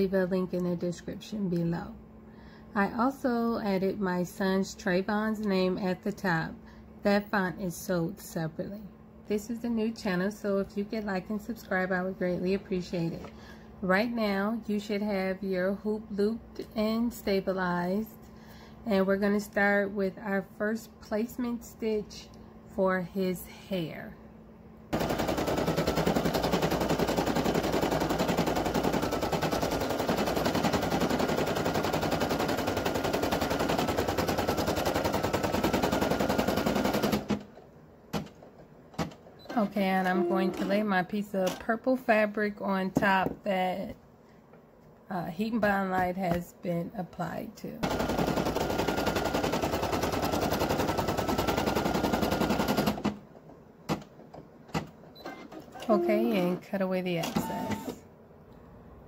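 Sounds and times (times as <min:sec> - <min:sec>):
embroidery machine stitching: 0:25.0 - 0:37.4, 0:47.8 - 0:53.2.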